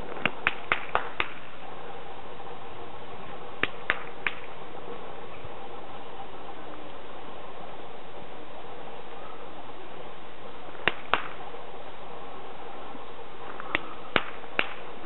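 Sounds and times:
steady outdoor hiss: 0:00.0 - 0:15.0
hand clapping: 0:00.2 - 0:01.4, 0:13.7 - 0:14.8.

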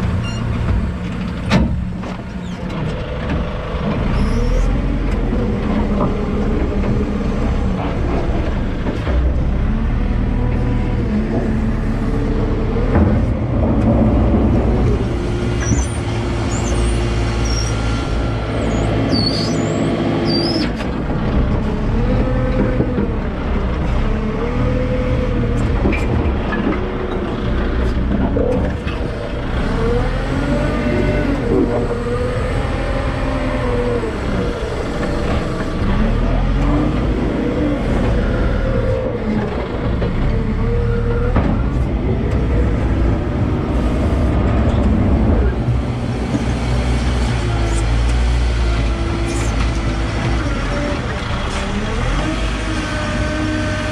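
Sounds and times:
diesel engine running: 0:00.0 - 0:53.9.

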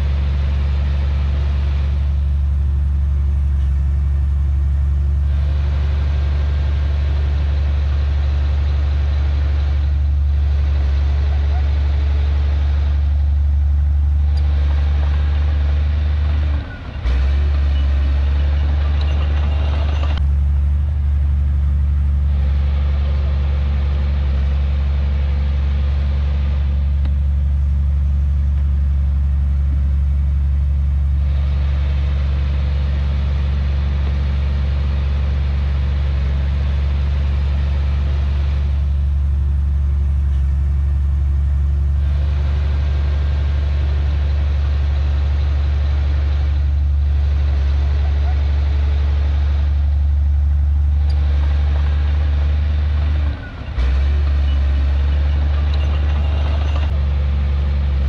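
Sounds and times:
diesel engine humming: 0:00.0 - 0:58.0.

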